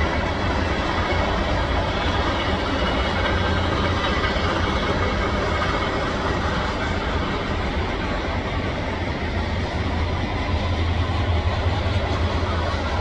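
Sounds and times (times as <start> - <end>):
freight train rolling past: 0.0 - 13.0.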